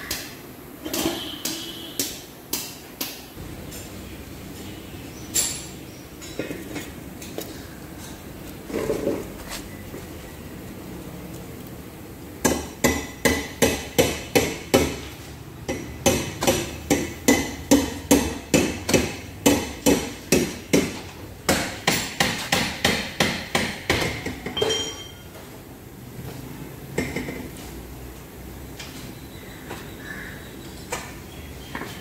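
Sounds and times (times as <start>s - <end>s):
hammer striking metal: 15.7s - 25.2s.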